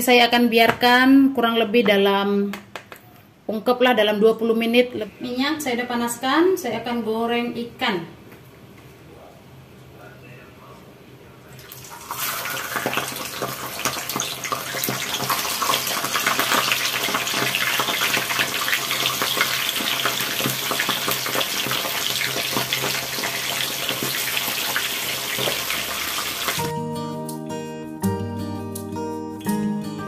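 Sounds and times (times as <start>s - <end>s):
fish frying in hot oil: 11.7s - 26.6s.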